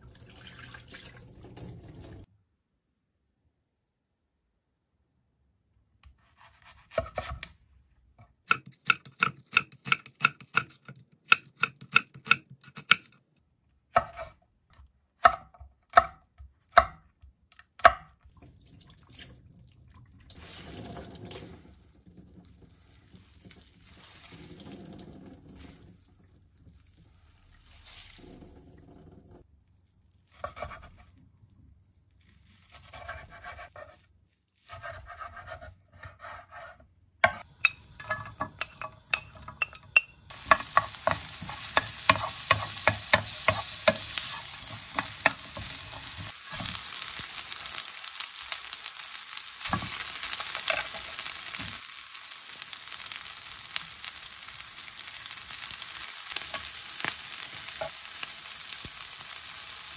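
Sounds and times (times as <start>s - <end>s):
knife chopping on wooden board: 6.3s - 7.5s, 34.7s - 37.5s.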